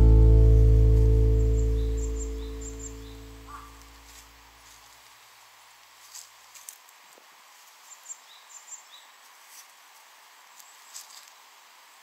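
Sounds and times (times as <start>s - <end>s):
background music: 0.0s - 3.1s
high chirps: 0.0s - 3.8s.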